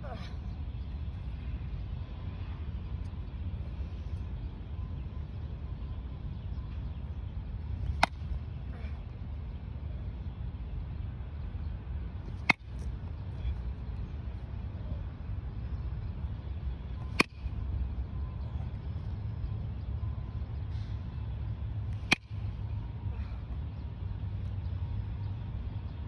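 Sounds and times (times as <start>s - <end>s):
steady low rumble: 0.0s - 26.0s
baseball bat cracks: 7.8s - 8.3s, 12.4s - 12.9s, 17.1s - 17.5s, 21.9s - 22.5s.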